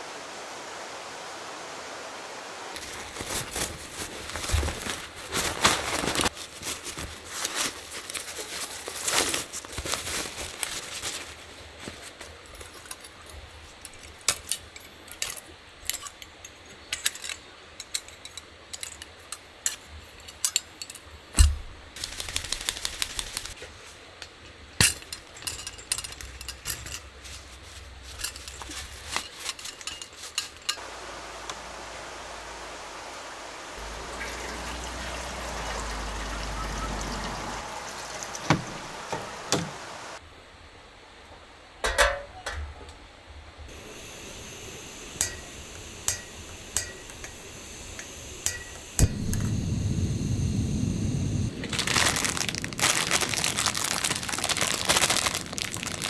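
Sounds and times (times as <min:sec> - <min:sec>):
steady hiss: 0:00.0 - 0:16.2, 0:18.1 - 0:41.8, 0:43.5 - 0:56.0
clicks and rattles of gear: 0:02.8 - 0:21.1, 0:22.0 - 0:30.8.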